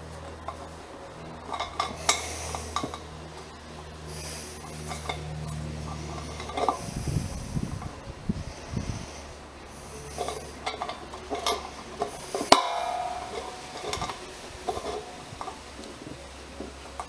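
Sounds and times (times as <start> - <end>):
metal rod scraping in keg valve: 1.4 - 3.2, 4.0 - 7.6, 8.5 - 16.0
sharp metallic clink: 9.8 - 15.7.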